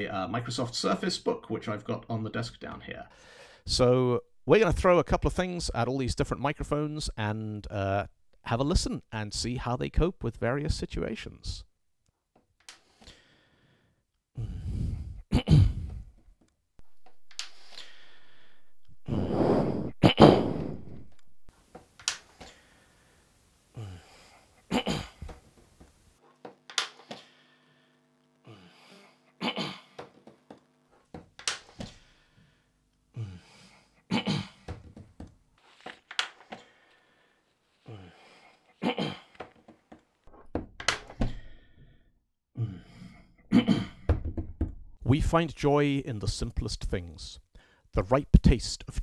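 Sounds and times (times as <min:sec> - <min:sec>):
breaths: 0:03.1 - 0:03.7, 0:12.8 - 0:16.1, 0:17.4 - 0:19.8, 0:22.4 - 0:24.6, 0:27.0 - 0:29.3, 0:31.8 - 0:34.0, 0:36.4 - 0:38.8, 0:41.1 - 0:43.4, 0:47.5 - 0:47.9.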